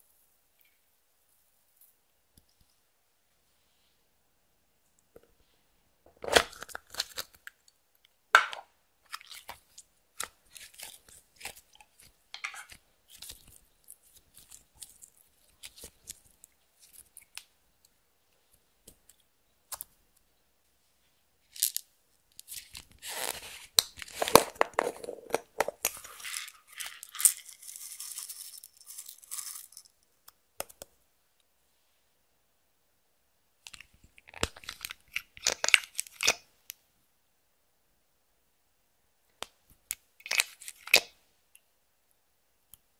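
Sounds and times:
slime squishing: 9.1s - 17.4s.

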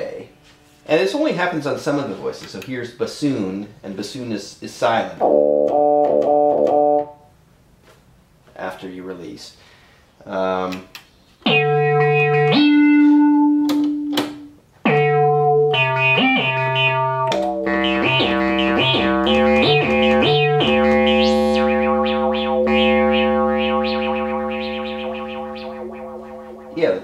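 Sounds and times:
analog synthesizer notes: 5.2s - 7.2s, 11.5s - 14.2s, 14.9s - 27.0s.

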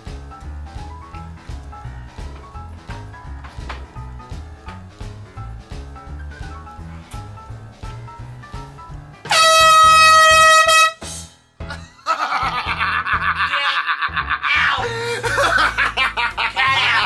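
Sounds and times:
background music with beat: 0.0s - 13.4s
air horn blast: 9.2s - 11.4s
woman shrieking laugh: 11.8s - 15.9s, 16.5s - 17.0s.

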